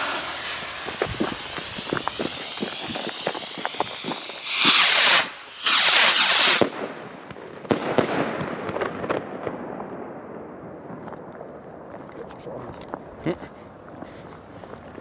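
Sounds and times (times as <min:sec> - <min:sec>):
fuses crackling: 0:00.0 - 0:05.4
rockets launching with rushing hiss: 0:00.0 - 0:09.6
firework bangs: 0:00.0 - 0:13.2.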